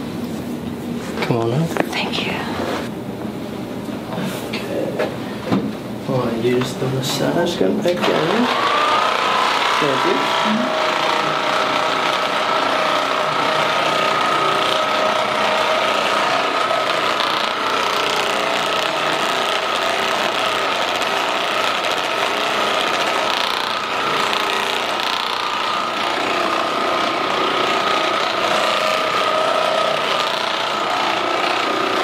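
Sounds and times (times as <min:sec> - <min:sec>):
massage gun buzzing: 0:07.2 - 0:32.0.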